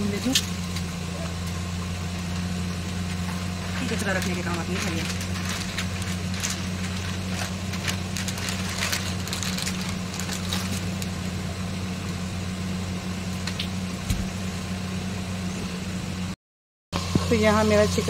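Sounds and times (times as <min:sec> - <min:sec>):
electric motor hum: 0:00.0 - 0:16.4
plastic packet crinkling: 0:03.4 - 0:11.2.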